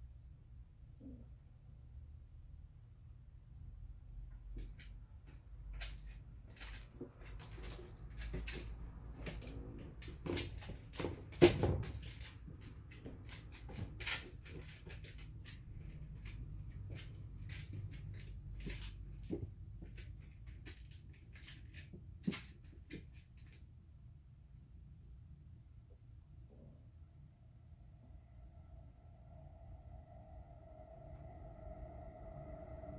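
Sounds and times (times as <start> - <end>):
dog claws clicking on tiles: 4.5 - 23.6.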